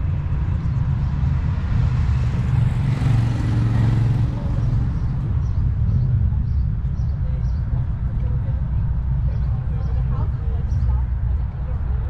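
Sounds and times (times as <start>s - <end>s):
motorcycles riding past: 0.0s - 6.5s.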